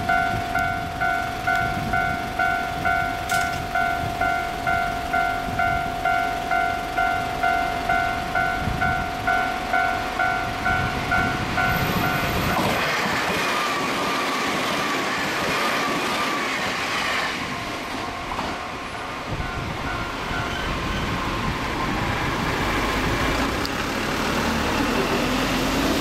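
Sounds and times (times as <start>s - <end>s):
level crossing bell ringing: 0.0s - 12.5s, 18.1s - 20.6s
train passing with whine: 0.0s - 26.0s.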